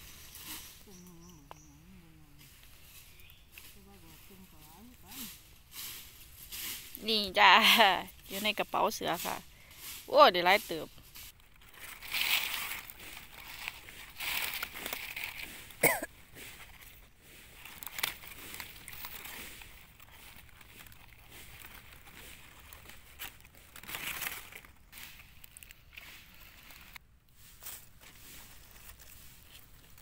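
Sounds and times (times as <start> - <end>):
dry leaves rustling and crunching: 0.0 - 1.8, 2.5 - 30.0.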